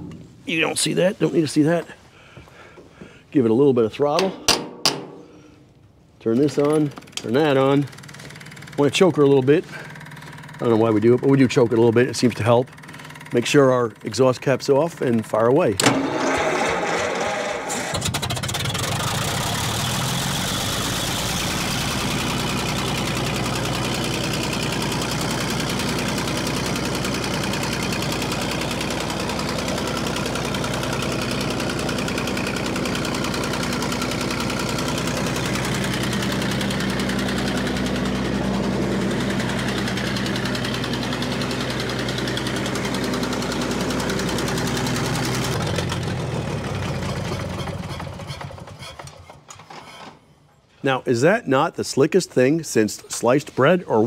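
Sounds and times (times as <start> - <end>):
engine running down to a stop: 6.8 - 14.0, 14.9 - 49.6
engine idling: 6.8 - 49.4.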